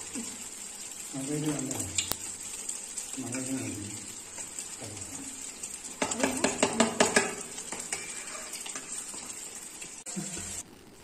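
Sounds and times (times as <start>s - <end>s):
oil frying in a pan: 0.0s - 11.0s
spoon scraping metal bowl: 7.0s - 9.2s.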